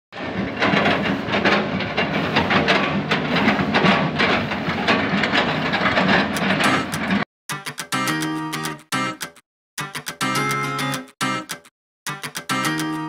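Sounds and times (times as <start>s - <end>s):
excavator diesel engine running: 0.2s - 7.2s.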